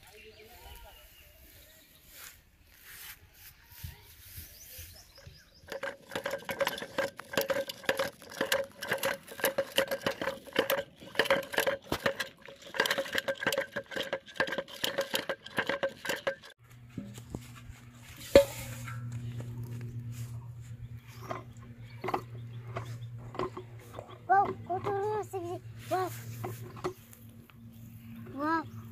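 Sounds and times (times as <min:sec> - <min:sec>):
steady low hum: 0:16.2 - 0:28.9.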